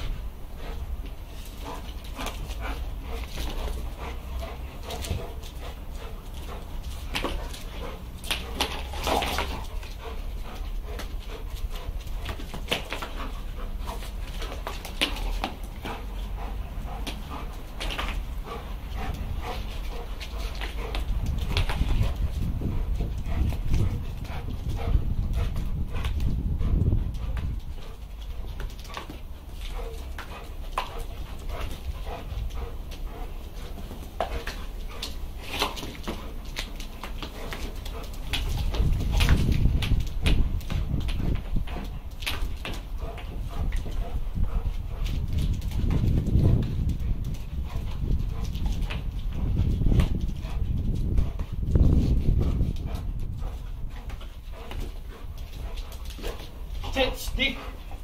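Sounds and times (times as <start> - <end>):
dog paws clicking on tiles: 0.0 - 58.0
dog vocal sounds: 52.4 - 58.0.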